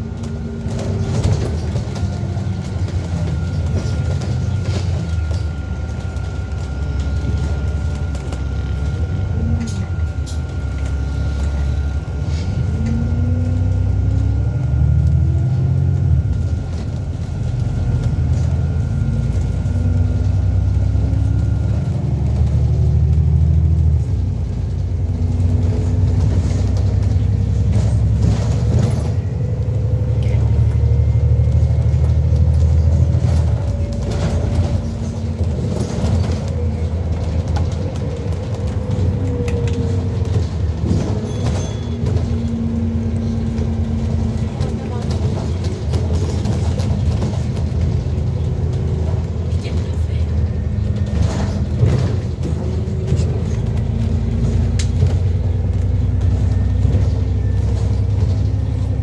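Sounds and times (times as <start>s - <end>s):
bus engine rumble: 0.0s - 59.0s.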